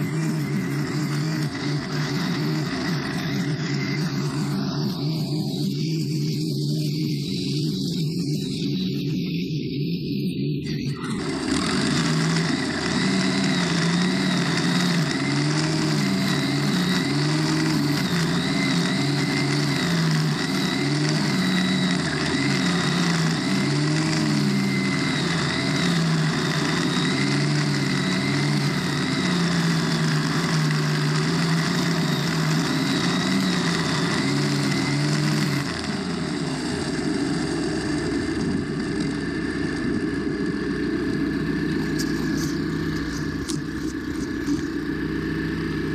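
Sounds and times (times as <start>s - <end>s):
string trimmer cutting grass: 0.0s - 9.0s, 10.6s - 45.9s.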